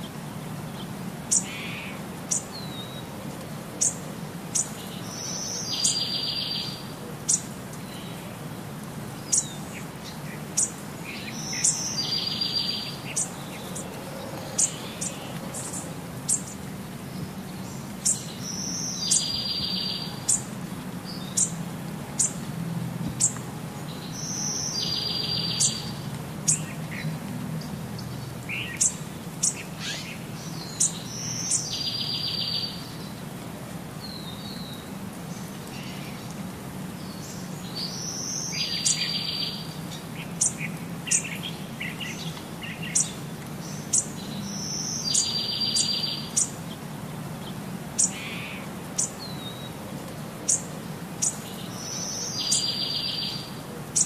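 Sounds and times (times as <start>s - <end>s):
birds chirping: 3.8s - 8.3s, 9.1s - 22.4s, 23.2s - 33.2s, 34.0s - 49.8s, 50.4s - 54.0s.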